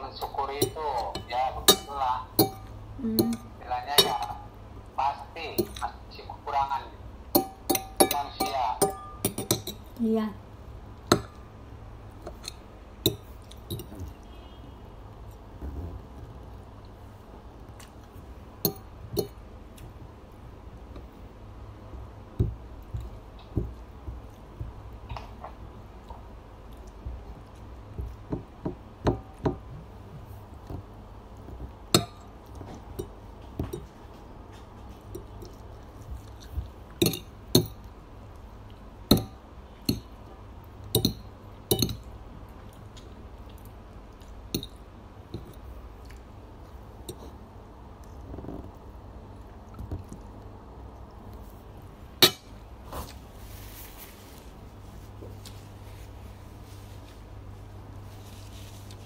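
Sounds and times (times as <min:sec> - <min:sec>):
steady low hum: 0:00.0 - 0:59.0
cutlery clinking on a plate: 0:07.4 - 0:09.8.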